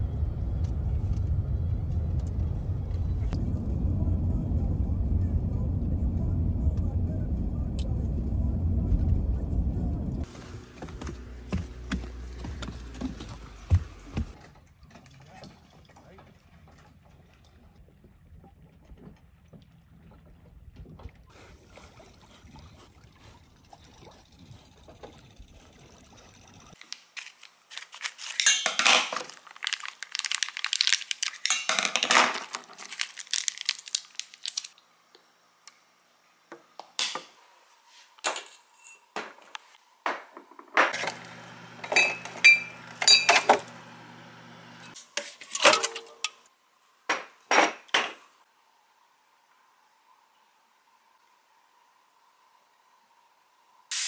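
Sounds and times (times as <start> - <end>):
dishes and cutlery clinking: 41.9 - 43.6.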